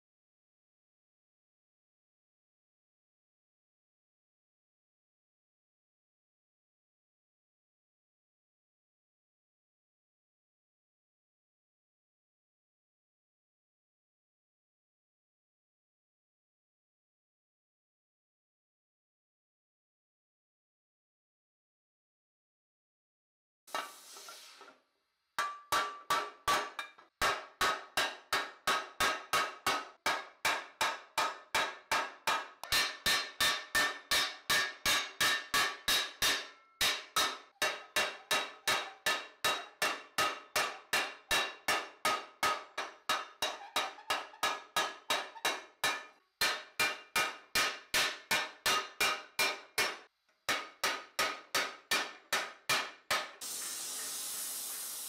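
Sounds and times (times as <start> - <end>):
steady hiss: 23.7 - 24.7, 53.4 - 55.0
hammer striking metal punch: 25.4 - 53.4.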